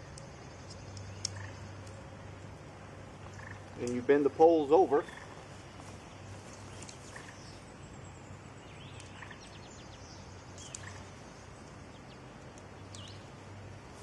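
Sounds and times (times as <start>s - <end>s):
low background hum: 0.0s - 14.0s.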